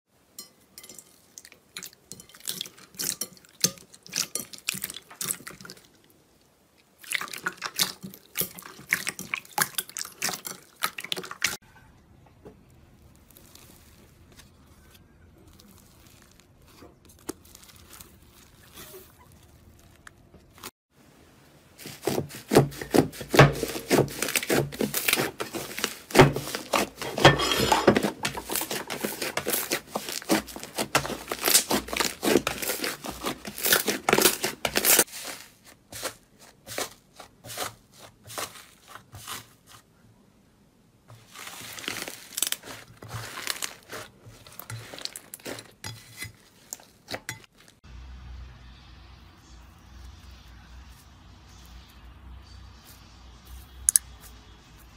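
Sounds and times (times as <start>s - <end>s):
slime crackling and popping: 12.8s - 14.6s, 15.3s - 20.7s, 28.3s - 37.0s, 41.2s - 47.7s.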